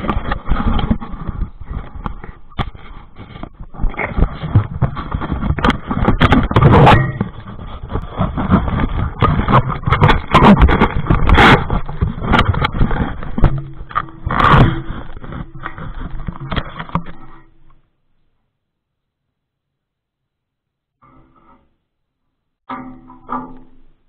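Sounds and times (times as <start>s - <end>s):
camera handling rubbing and scraping: 0.0s - 17.6s
loud bumps on microphone: 2.6s - 17.0s.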